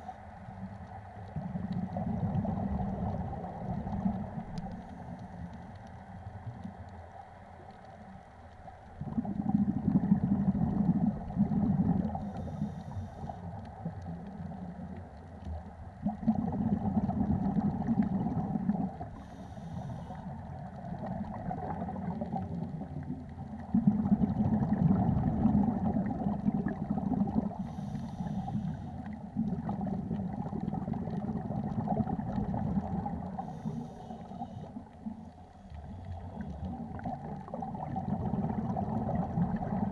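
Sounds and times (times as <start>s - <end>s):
underwater exhaled bubbles gurgling: 0.0s - 39.9s
regulator inhalation hiss: 12.2s - 13.4s, 19.2s - 20.2s, 27.6s - 29.0s, 33.4s - 34.8s.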